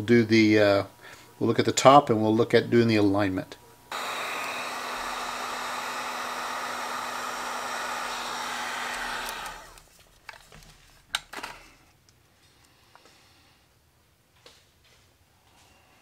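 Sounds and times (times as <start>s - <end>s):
heat gun blowing air: 3.9s - 9.8s.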